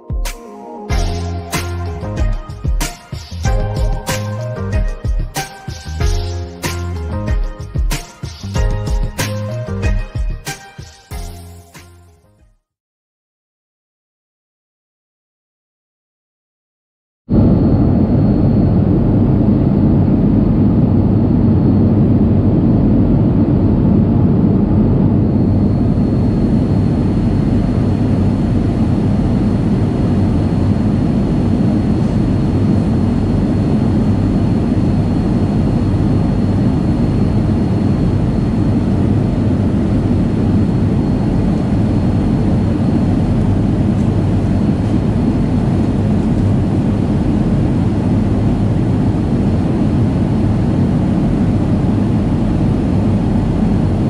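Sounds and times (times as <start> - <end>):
faint high whine: 17.3 - 54.0
jet engine roar in cabin: 17.3 - 54.0.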